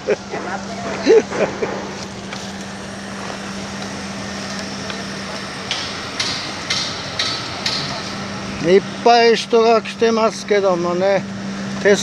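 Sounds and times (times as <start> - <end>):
truck engine idling: 0.0 - 12.0
sharp knocks: 4.8 - 8.3.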